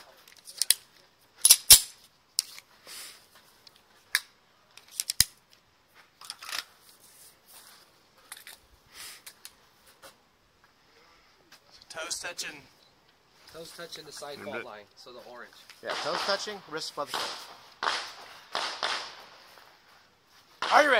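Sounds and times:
pistol clicks and clacks: 0:01.4 - 0:01.9, 0:04.1 - 0:05.4
soft rustling: 0:05.8 - 0:11.8.

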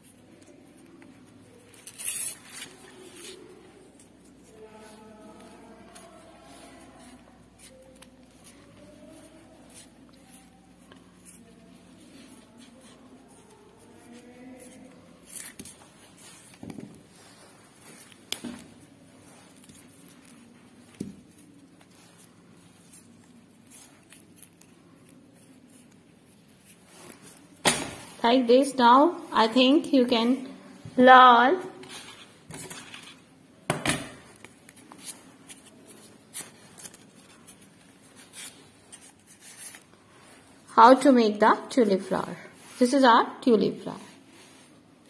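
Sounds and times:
tape rustling: 0:00.0 - 0:28.4, 0:34.1 - 0:41.1
tape crinkles and taps: 0:17.8 - 0:18.8, 0:19.5 - 0:22.0.

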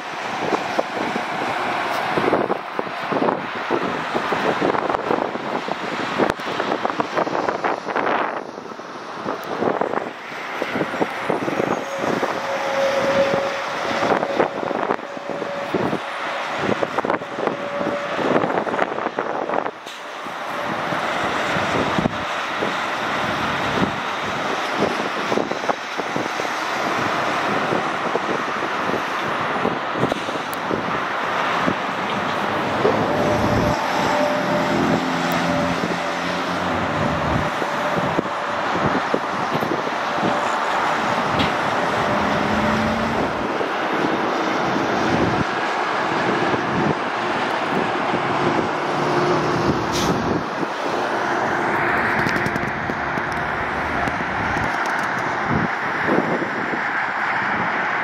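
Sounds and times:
highway traffic passing: 0:00.0 - 0:58.0.

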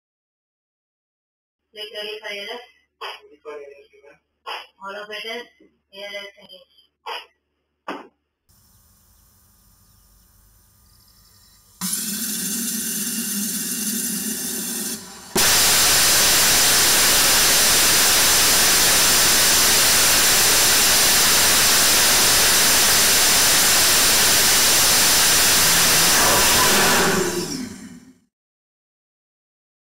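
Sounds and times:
low hum: 0:09.0 - 0:28.2
rocket engine exhaust roar: 0:11.7 - 0:28.2.

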